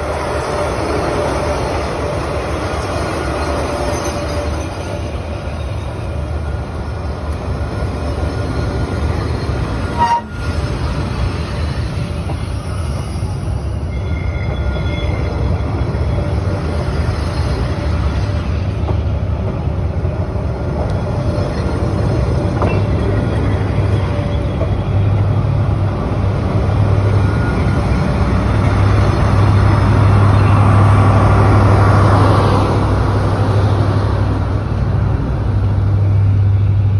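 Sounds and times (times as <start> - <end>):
train wheels rumbling on rails: 0.0 - 36.9
faint wheel squeal: 11.4 - 16.2.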